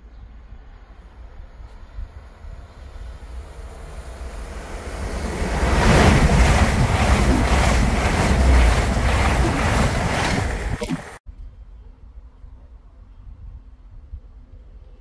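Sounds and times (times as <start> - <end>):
train passing at speed: 0.4 - 11.2.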